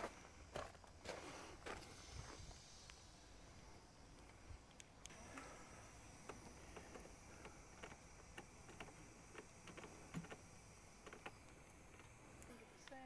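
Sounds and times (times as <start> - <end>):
faint outdoor ambience: 0.0 - 13.0
small clicks: 4.2 - 13.0.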